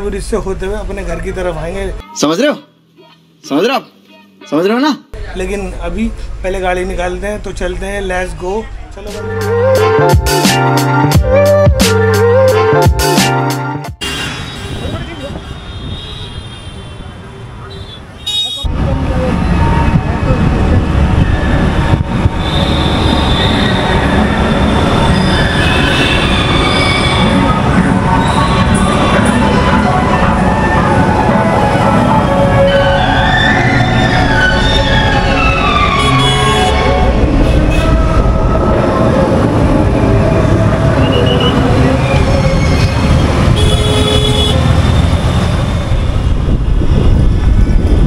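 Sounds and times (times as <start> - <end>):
low road and engine rumble: 14.0 - 48.0
vehicle horn: 17.7 - 18.7, 22.4 - 27.4, 35.9 - 38.1, 41.0 - 41.7, 43.5 - 45.1
wind buffeting microphone: 18.7 - 23.2, 44.6 - 48.0
train wheels squealing: 22.4 - 28.9, 41.0 - 43.4.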